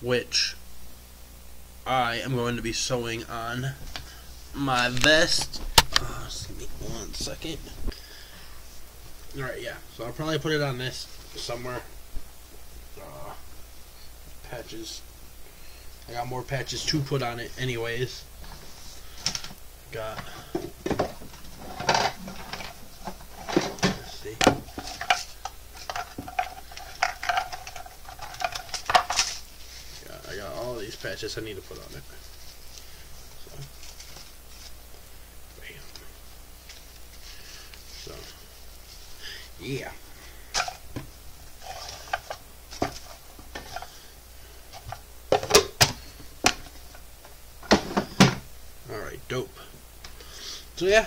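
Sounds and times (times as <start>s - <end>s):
small items handled and sorted: 16.1s - 48.5s
objects clicking and knocking: 20.9s - 29.4s.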